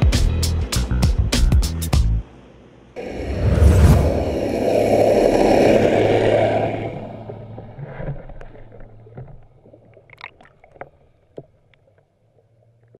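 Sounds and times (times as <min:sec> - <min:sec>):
underwater rushing and bubbling: 0:03.0 - 0:13.0.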